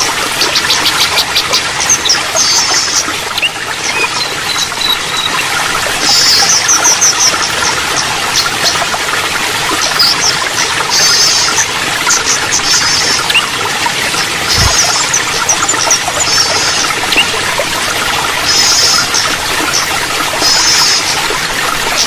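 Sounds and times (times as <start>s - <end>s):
running water: 0.0s - 22.0s
songbirds chirping and trilling: 0.0s - 22.0s.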